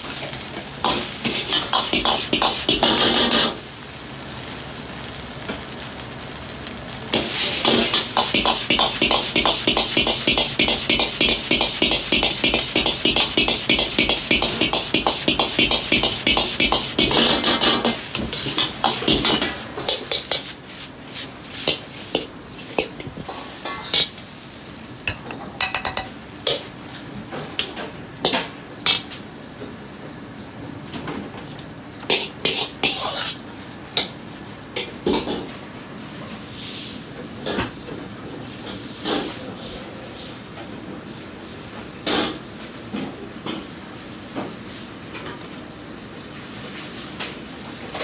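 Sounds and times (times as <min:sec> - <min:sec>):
metal ladle scraping wok: 0:00.8 - 0:03.6, 0:07.2 - 0:24.2, 0:32.1 - 0:33.4.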